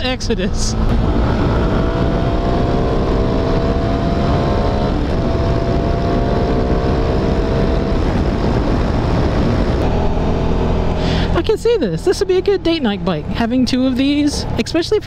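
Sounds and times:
wind rumble on microphone: 0.0 - 11.4
motorcycle engine accelerating: 0.0 - 15.0.

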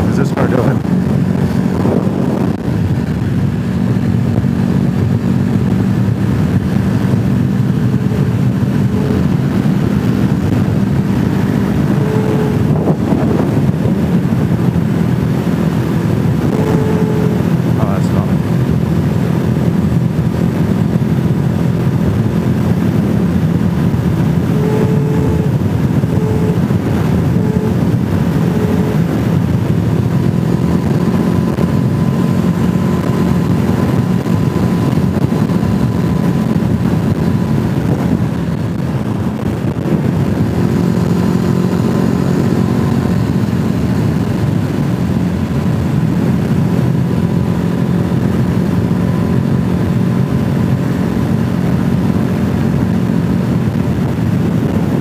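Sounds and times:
vehicle engine rumble: 0.0 - 55.0
short tones: 11.6 - 13.3, 16.4 - 18.3, 24.4 - 29.2.

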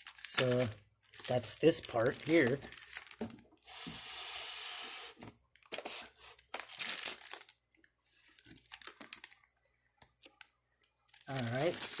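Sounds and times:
plastic bags crinkling: 0.0 - 3.5, 5.5 - 9.5, 10.2 - 12.0.

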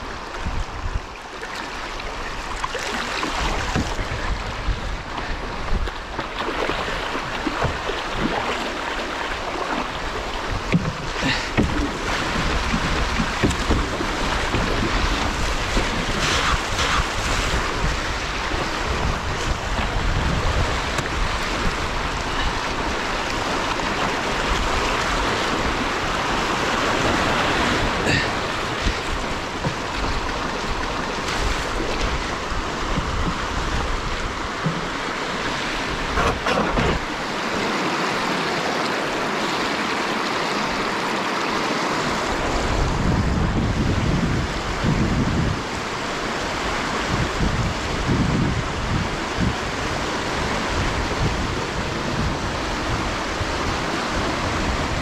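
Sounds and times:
river rapids rushing: 0.0 - 55.0
short knocks on canoe: 3.6 - 4.1, 9.8 - 17.0, 28.4 - 32.2, 32.8 - 37.2
microphone handling rumble: 10.4 - 22.6, 28.1 - 37.2.

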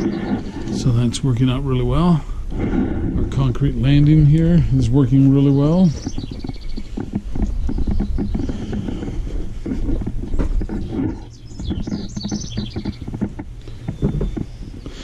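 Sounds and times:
footsteps: 0.0 - 15.0
small birds chirping: 0.0 - 15.0
wind rumble on microphone: 0.0 - 15.0.

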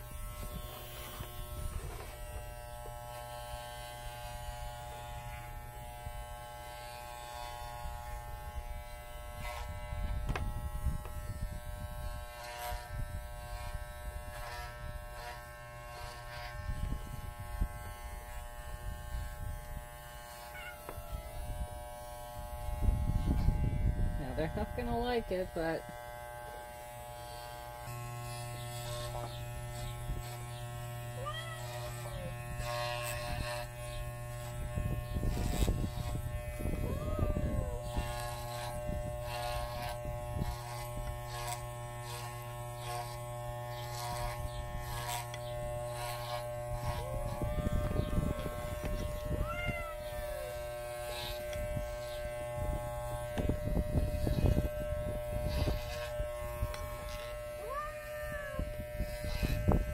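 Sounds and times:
electric hair clippers buzzing: 0.0 - 59.9
cat meowing: 20.5 - 21.4, 31.2 - 31.9, 49.4 - 50.2, 57.6 - 58.6.

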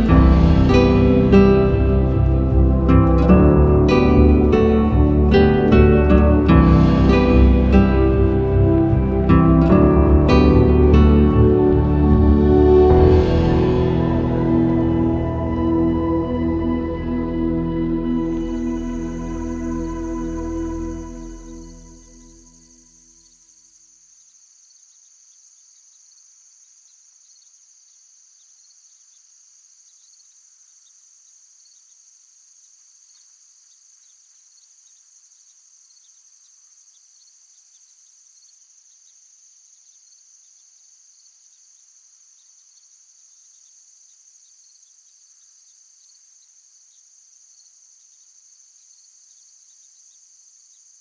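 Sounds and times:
crickets trilling: 14.2 - 51.0.

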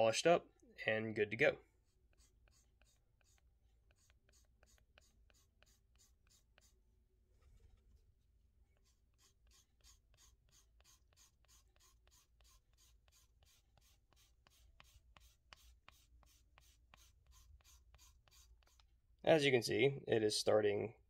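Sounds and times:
sanding stick scratching plastic: 1.8 - 6.8, 8.8 - 18.9.

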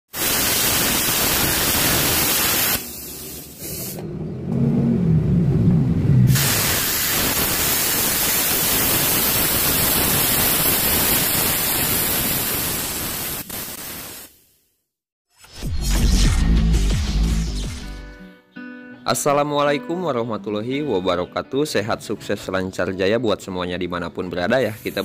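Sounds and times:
plasma cutter hissing: 0.1 - 4.0, 6.3 - 14.6, 24.6 - 25.0
low rumbling: 3.7 - 6.7.

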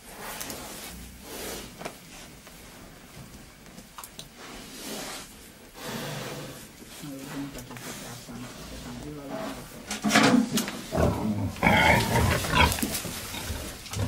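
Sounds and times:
wild boar snuffling: 0.0 - 14.0
earth scraping and crunching: 10.8 - 14.0.

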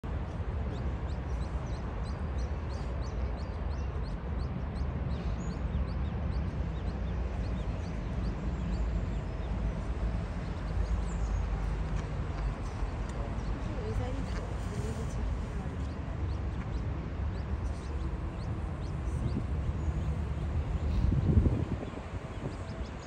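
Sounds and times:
ducklings peeping: 0.7 - 23.0
low rumble: 4.7 - 23.0.

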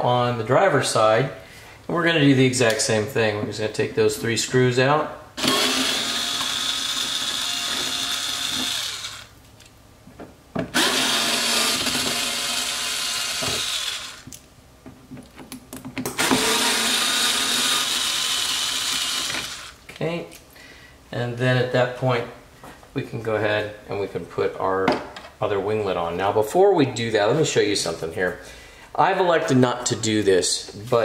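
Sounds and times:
cordless drill running: 5.4 - 9.4, 10.7 - 14.3, 16.2 - 19.8.

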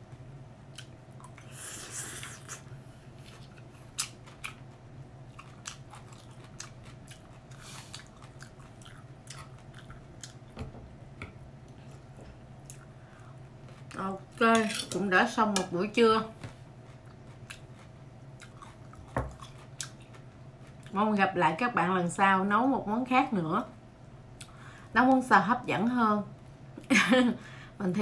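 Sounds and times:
person chewing food: 0.7 - 10.6, 11.7 - 14.0, 16.5 - 20.9.

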